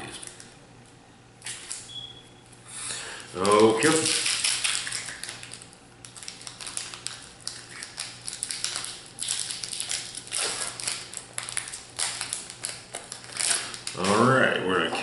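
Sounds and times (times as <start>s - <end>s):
foil wrapper crinkling and tearing: 3.2s - 14.4s.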